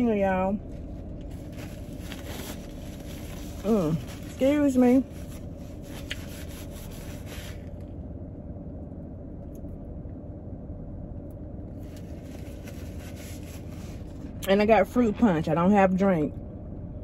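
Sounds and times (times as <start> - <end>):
car interior hum: 0.0 - 17.0
paper napkins rustling: 0.8 - 7.7, 12.0 - 14.1.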